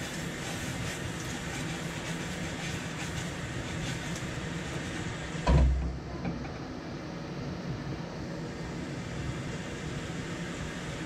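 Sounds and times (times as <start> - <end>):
gas burner and frying hiss: 0.0 - 11.0
frying pan thump on grate: 5.4 - 6.4.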